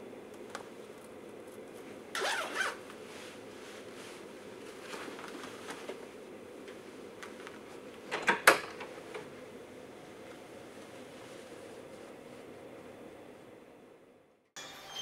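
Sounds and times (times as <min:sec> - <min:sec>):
low room hum: 0:00.0 - 0:15.0
jacket zipper zipping: 0:02.1 - 0:02.8
rustles and small taps: 0:04.1 - 0:08.0.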